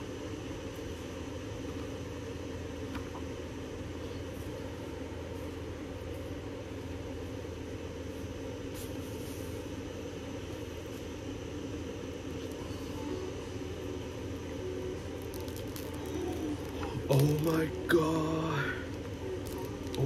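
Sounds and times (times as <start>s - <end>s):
air purifier fan running: 0.0s - 20.0s
photo prints rustling: 15.2s - 20.0s.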